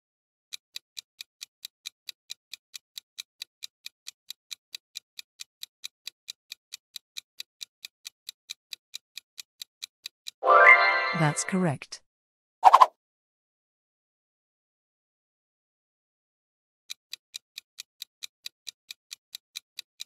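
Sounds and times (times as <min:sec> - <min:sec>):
clock ticking: 0:00.5 - 0:10.4, 0:16.9 - 0:20.0.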